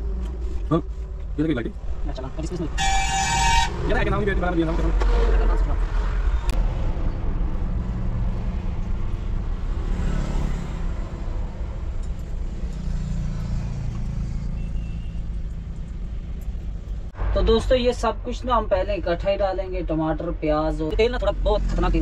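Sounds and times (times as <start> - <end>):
vehicle engine rumble: 0.0 - 22.0.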